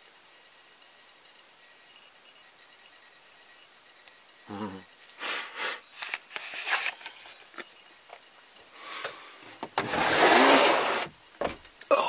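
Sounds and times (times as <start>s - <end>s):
knocks and rustles of movement: 6.0s - 11.9s
loud scraping: 9.8s - 11.1s.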